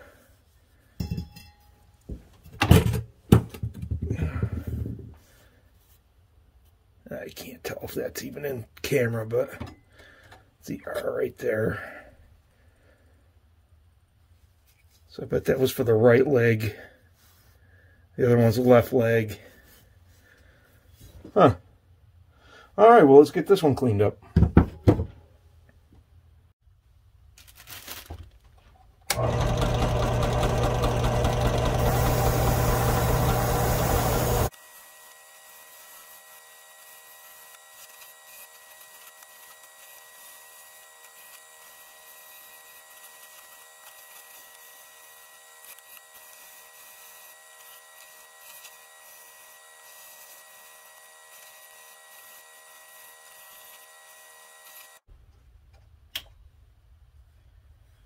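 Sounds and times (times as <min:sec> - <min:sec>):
drill press motor with wire brush: 0:29.1 - 0:55.1.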